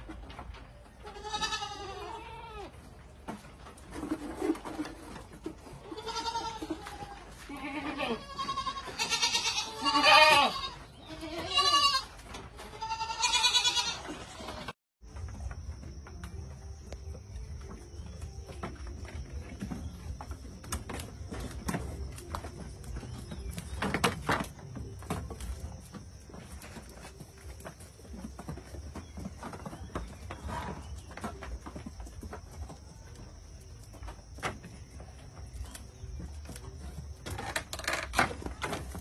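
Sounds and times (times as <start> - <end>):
goats bleating: 1.0 - 2.7, 5.8 - 14.7.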